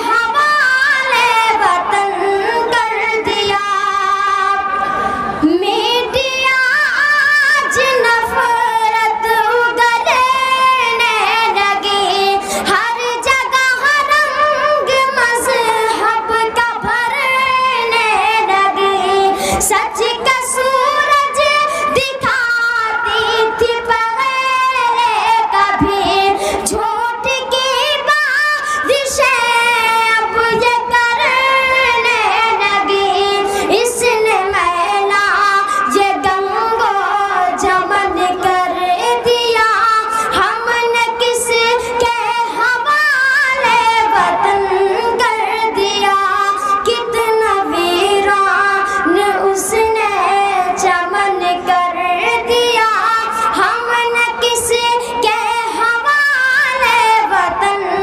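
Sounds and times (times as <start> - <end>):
boy singing unaccompanied: 0.0 - 4.7, 5.4 - 58.0.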